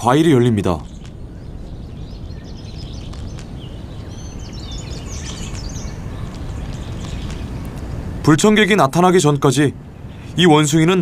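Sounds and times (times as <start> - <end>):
high bird chirps: 0.8 - 8.0.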